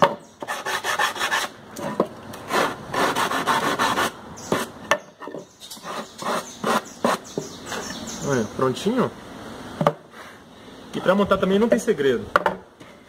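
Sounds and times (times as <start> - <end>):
sanding wood by hand: 0.4 - 1.6, 2.5 - 4.7, 5.8 - 7.3.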